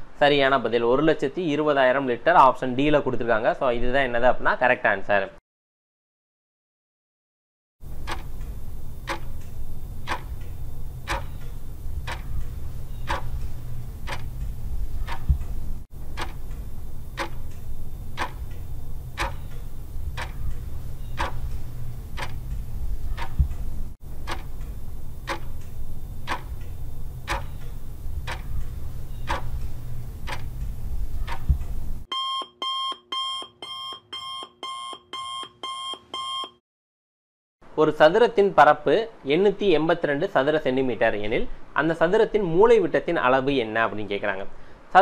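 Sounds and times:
clock ticking: 0:07.9 - 0:32.1
low hum: 0:07.9 - 0:32.1.

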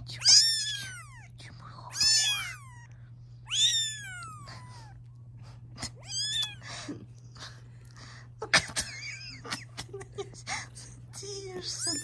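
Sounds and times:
kitten mewing: 0:00.1 - 0:05.0, 0:05.8 - 0:06.7, 0:11.7 - 0:12.0.

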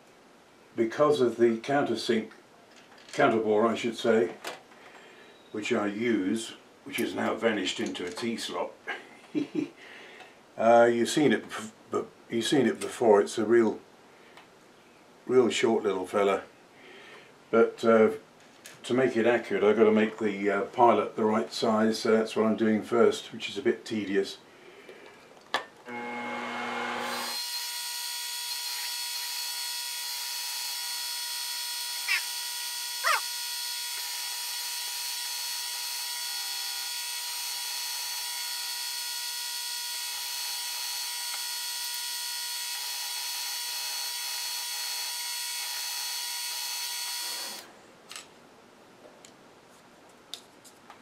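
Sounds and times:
milling machine drilling metal: 0:25.9 - 0:47.6.

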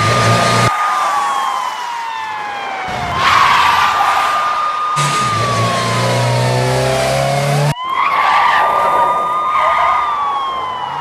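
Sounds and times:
car engines: 0:00.0 - 0:11.0
police siren wailing: 0:00.0 - 0:11.0
tyres skidding: 0:02.4 - 0:11.0.

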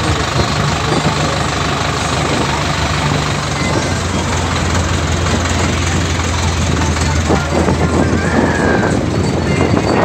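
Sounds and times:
road noise: 0:00.0 - 0:10.0
tractor engine running: 0:00.0 - 0:10.0
wind noise: 0:03.6 - 0:10.0.

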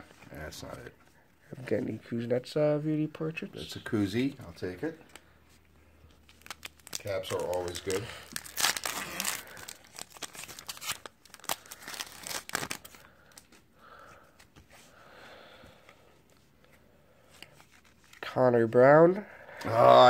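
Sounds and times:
cards rustling: 0:05.1 - 0:14.8, 0:16.3 - 0:18.2
foil wrapper crinkling and tearing: 0:06.2 - 0:13.5.

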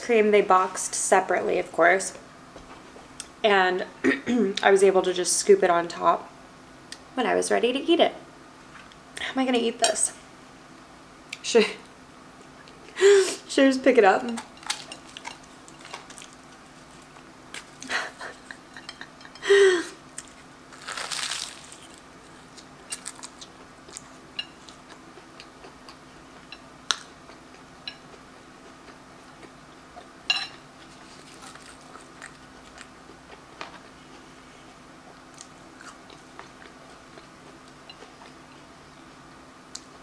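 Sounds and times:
pastry handling noises: 0:20.2 - 0:24.2, 0:30.8 - 0:32.9.

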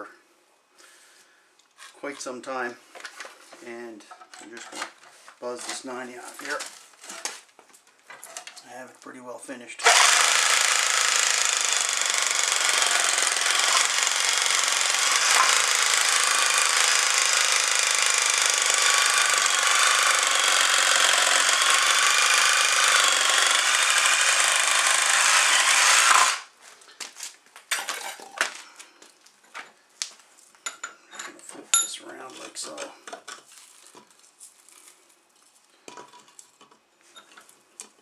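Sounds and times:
drill cutting whir: 0:09.8 - 0:26.5.

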